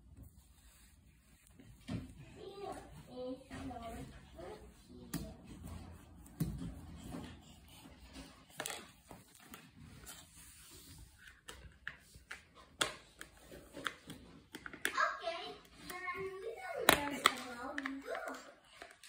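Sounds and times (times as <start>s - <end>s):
taps and scrapes on wooden floor: 1.4s - 15.0s
small plastic cups handled: 8.0s - 15.0s, 15.6s - 19.0s.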